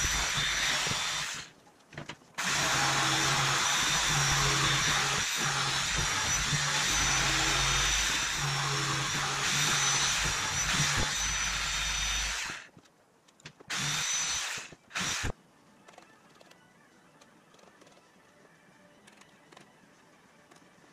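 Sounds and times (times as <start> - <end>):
jigsaw cutting wood sheet: 0.0 - 1.5, 2.4 - 12.7, 13.7 - 15.4.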